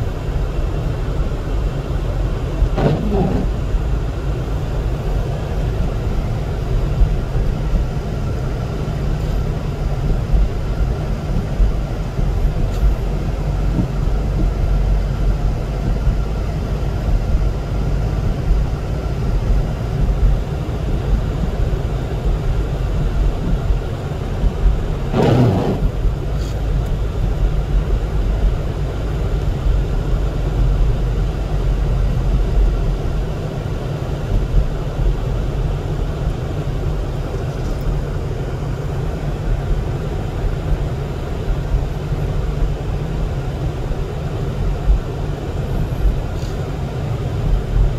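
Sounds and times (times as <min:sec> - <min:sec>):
car road and engine rumble: 0:00.0 - 0:47.9
brief loud noise: 0:25.2 - 0:26.0.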